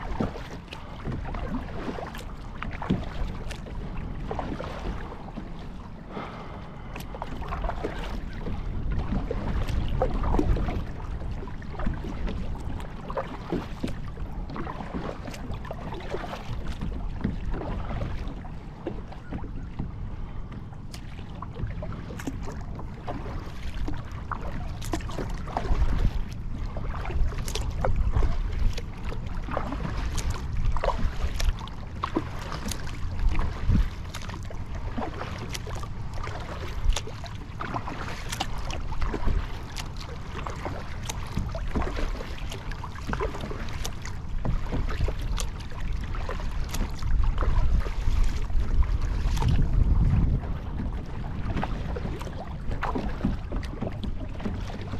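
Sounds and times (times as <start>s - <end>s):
water splashing around kayak: 0.0s - 54.9s
wind on microphone: 2.6s - 18.4s, 23.9s - 35.2s, 43.1s - 54.9s.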